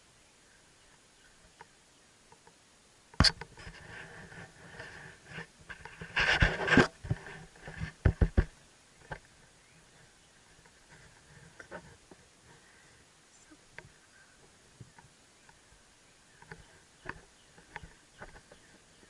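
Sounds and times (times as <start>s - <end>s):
hand rubbing over camera: 3.6s - 8.1s.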